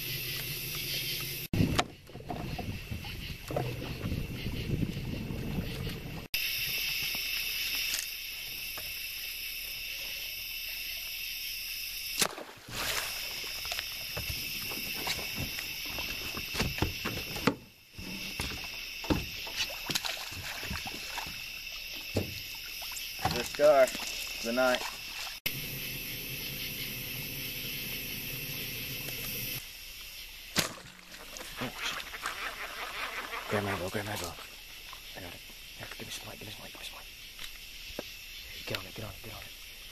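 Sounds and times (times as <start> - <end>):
night insects chorus: 0.0 - 39.9
water splashes: 12.2 - 17.3, 18.2 - 25.6, 30.6 - 35.1.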